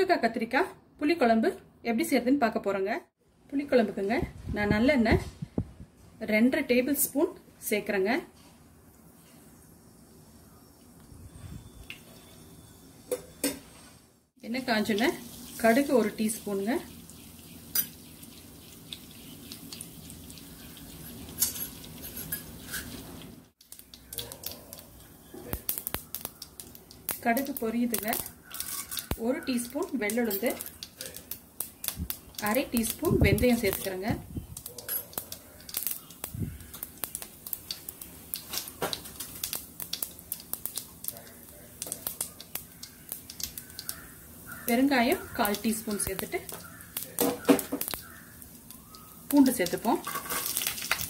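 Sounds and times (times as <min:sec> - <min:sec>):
seeds spluttering in hot oil: 0:14.4 - 0:51.0.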